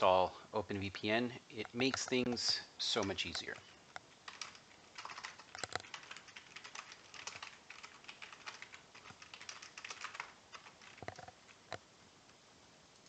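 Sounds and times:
computer keyboard typing: 1.8s - 11.8s.

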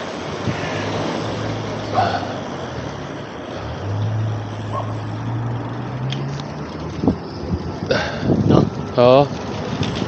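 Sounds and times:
road and wind noise: 0.0s - 10.0s
vehicle engine humming: 0.0s - 10.0s.

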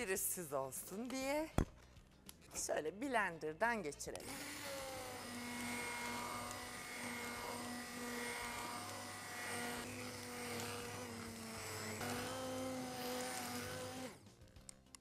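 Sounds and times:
immersion blender motor whine: 4.2s - 14.3s.

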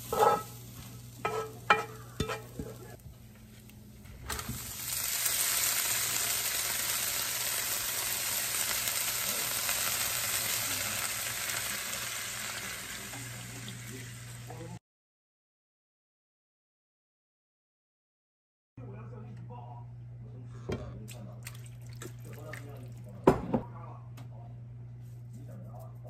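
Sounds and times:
noodles sizzling in hot oil: 0.0s - 2.8s, 4.2s - 14.7s.

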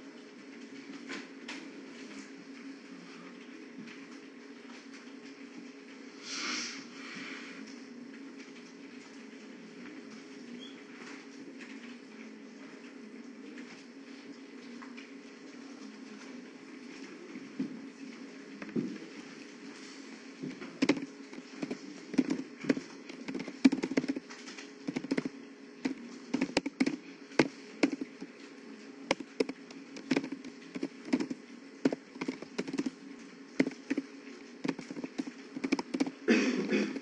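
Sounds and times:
low steady hum: 0.0s - 37.0s
keyboard typing: 20.8s - 28.3s, 29.1s - 33.0s, 33.6s - 36.3s.

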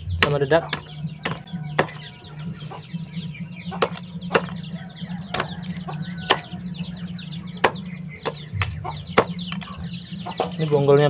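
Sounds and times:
ducklings peeping: 0.0s - 11.0s
machete chopping: 0.2s - 2.1s, 3.8s - 4.6s, 7.6s - 9.7s.

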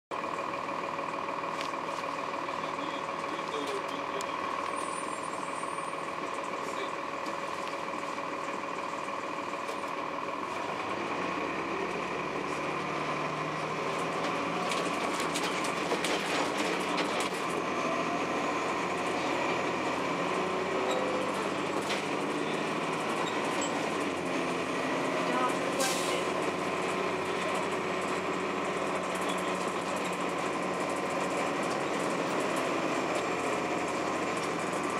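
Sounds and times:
bus diesel engine drone and whine: 0.1s - 34.9s
bus body rattling: 13.0s - 17.7s.

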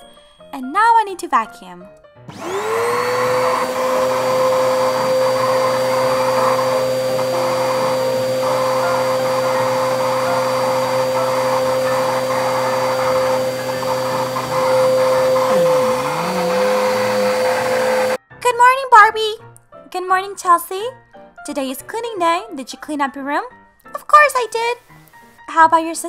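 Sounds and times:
vacuum cleaner motor whining: 2.3s - 18.2s.

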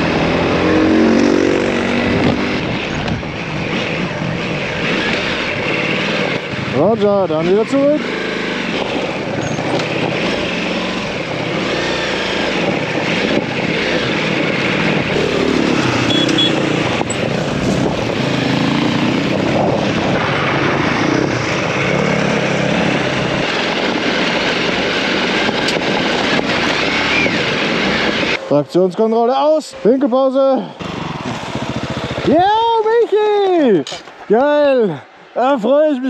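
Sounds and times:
wind noise: 0.0s - 7.4s, 8.6s - 28.5s
motorcycle engine revving: 0.0s - 28.5s, 30.1s - 33.0s.

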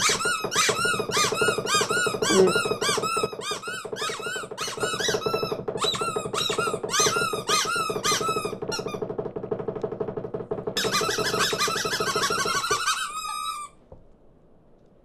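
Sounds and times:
cartoon birds squeaky peeps: 0.0s - 8.9s.

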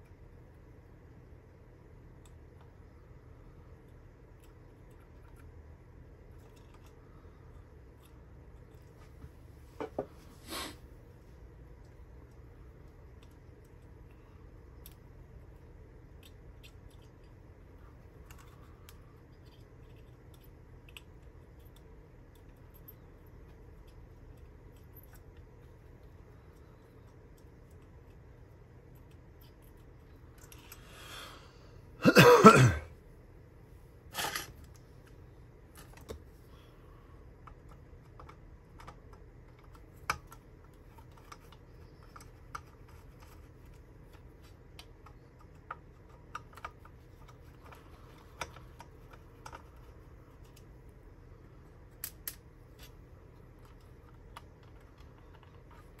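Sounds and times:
person coughing: 32.0s - 32.9s.

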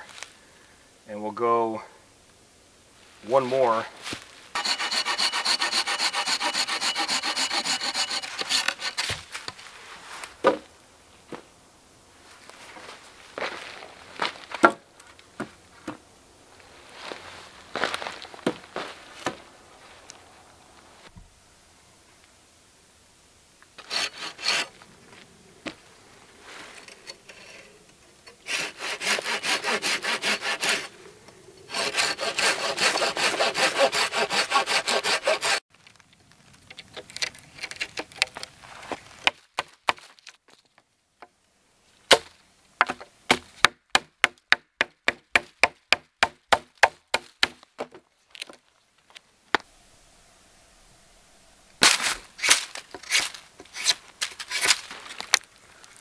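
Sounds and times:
hand saw cutting log: 4.6s - 9.2s, 23.8s - 24.8s, 26.8s - 31.0s, 31.6s - 35.6s, 51.8s - 54.8s.

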